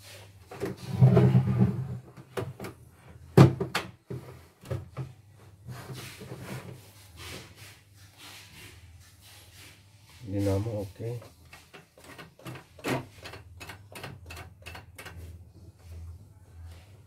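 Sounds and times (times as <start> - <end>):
plastic unit scraping and rubbing: 0.5 - 2.2.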